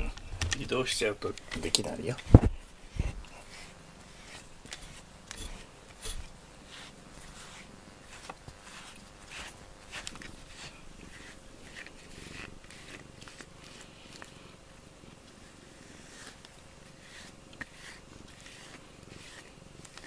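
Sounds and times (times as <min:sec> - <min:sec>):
fur rubbing on microphone: 0:02.3 - 0:13.8.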